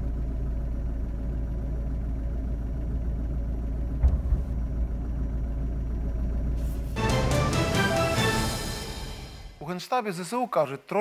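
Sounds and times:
low rumble of explosions: 2.2 - 7.0
sharp explosion blast: 4.0 - 4.8.

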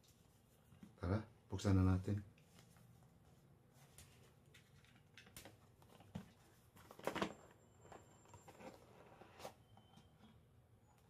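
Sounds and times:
packaging scraping and rubbing: 6.9 - 9.7.

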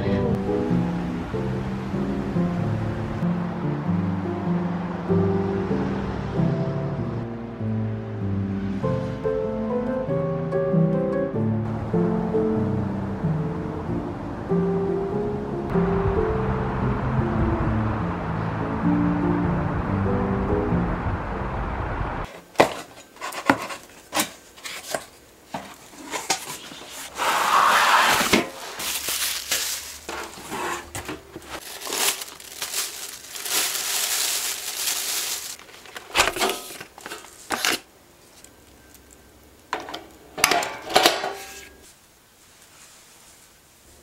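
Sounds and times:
background music: 0.0 - 22.2
packaging crinkling and rustling: 22.6 - 38.5
metal basket clicks and clanks: 35.6 - 37.7, 39.7 - 41.6.

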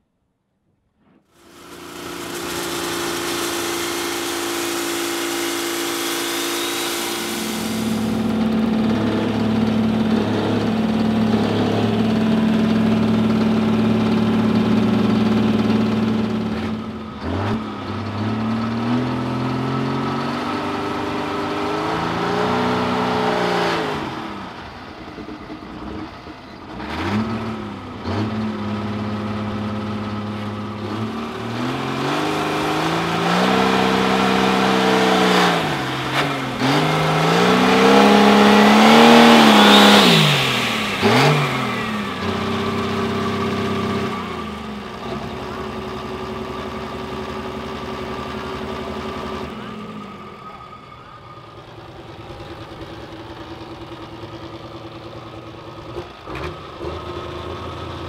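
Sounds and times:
diesel engine idling and revving: 1.4 - 58.0
turbo whistle: 2.3 - 8.2.

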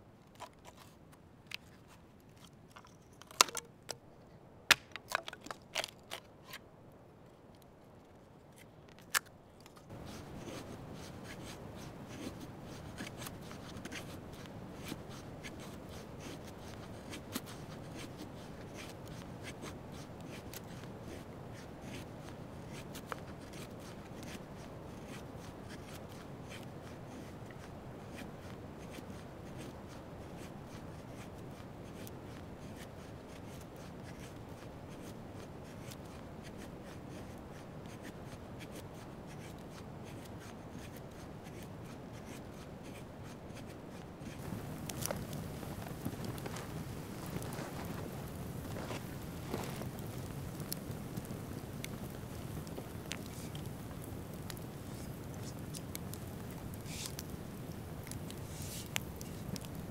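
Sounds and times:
wood curls crackling: 0.2 - 4.0, 4.7 - 6.6, 44.2 - 59.9
knife scraping a dry stick: 0.3 - 4.0, 4.7 - 6.6, 8.6 - 59.9.

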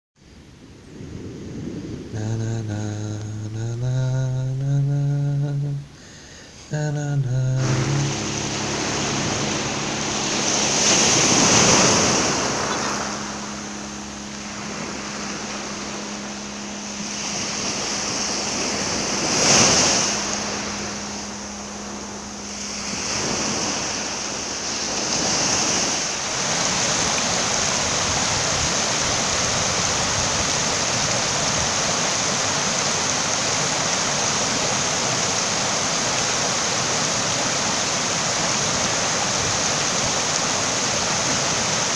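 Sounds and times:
waves breaking: 0.3 - 41.9
faint low hum: 1.7 - 31.4.

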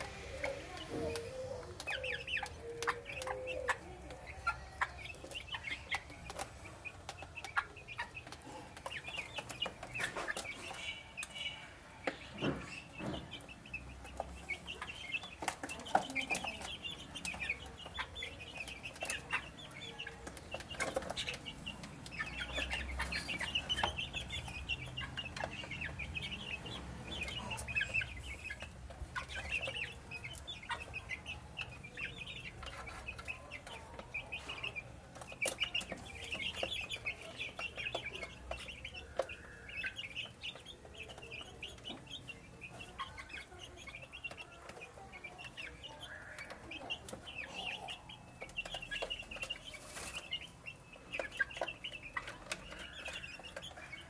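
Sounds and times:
beaks pecking on wood: 0.0 - 54.0
chicks peeping: 0.0 - 54.0.

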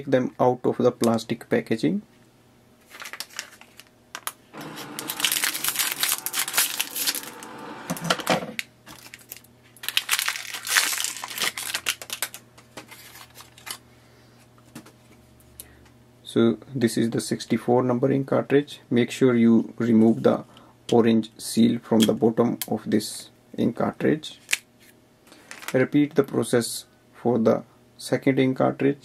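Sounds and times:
plastic packaging crinkling: 2.8 - 13.8.

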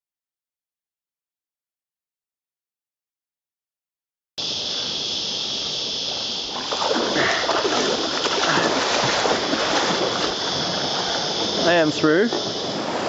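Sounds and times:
steady high hiss: 4.4 - 13.0
water splashing and sloshing: 5.8 - 13.0.

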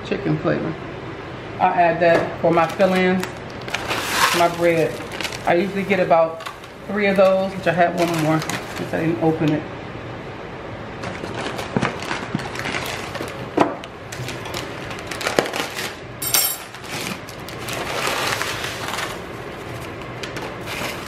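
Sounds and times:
crinkling packaging: 2.6 - 9.2, 11.0 - 21.0.

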